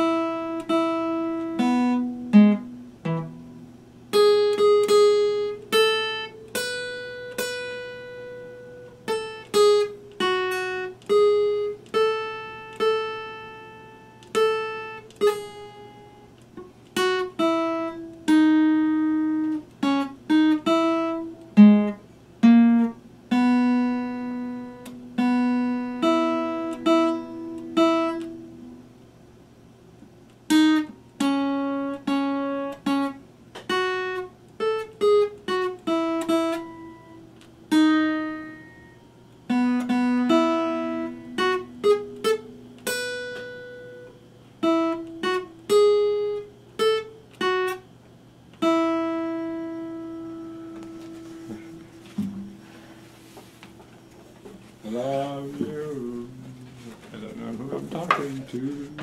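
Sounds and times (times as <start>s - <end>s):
fingerstyle acoustic guitar melody: 0.0s - 59.0s.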